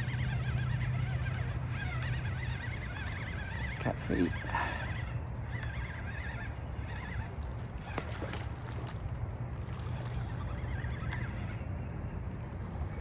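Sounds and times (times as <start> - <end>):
fish splashing in water: 7.5 - 10.6.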